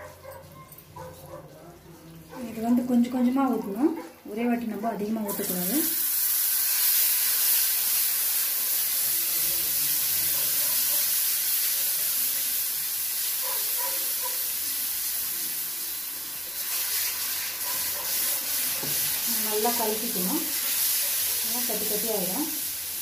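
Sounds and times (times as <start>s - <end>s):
syrup sizzling and hissing: 5.0s - 23.0s.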